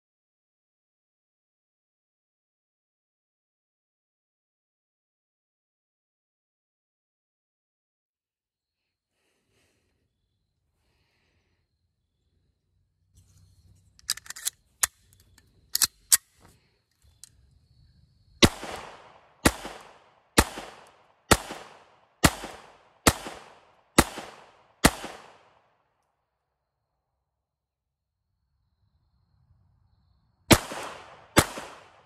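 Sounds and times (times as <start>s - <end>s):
pistol magazine clicks: 14.0s - 16.4s
pistol slide locking: 14.0s - 16.4s
pistol shots with echo: 18.4s - 25.6s, 30.5s - 32.0s.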